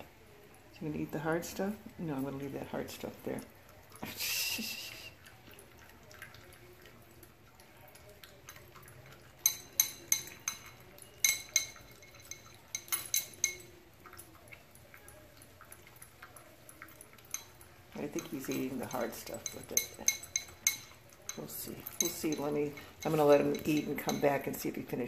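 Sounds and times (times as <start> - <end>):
dog chewing: 5.2 - 24.4
metal tags clinking on bowl: 7.2 - 25.0.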